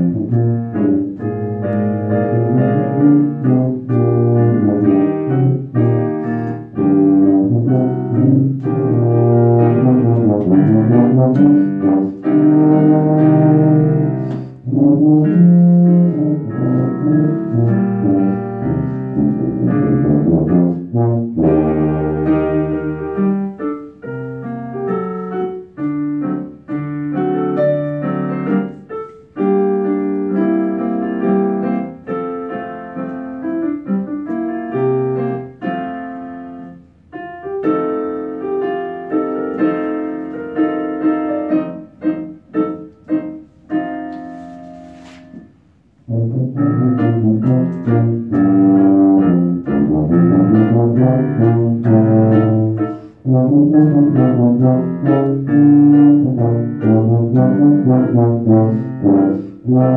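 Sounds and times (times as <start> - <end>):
loud low tuba: 0.0 - 23.6, 46.0 - 59.9
piano accompaniment: 0.0 - 59.9.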